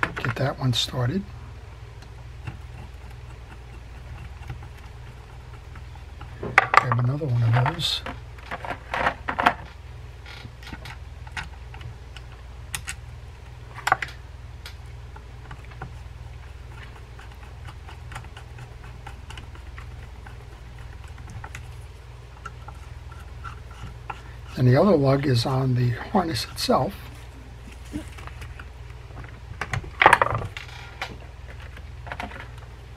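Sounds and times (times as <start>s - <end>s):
steady low hum: 0.0s - 32.9s.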